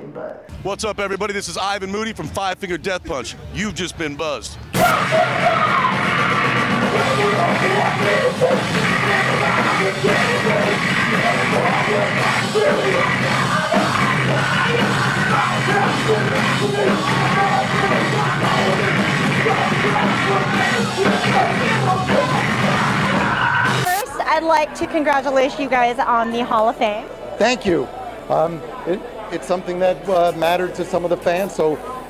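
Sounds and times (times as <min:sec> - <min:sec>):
heavy metal band playing live: 0:04.8 - 0:24.0.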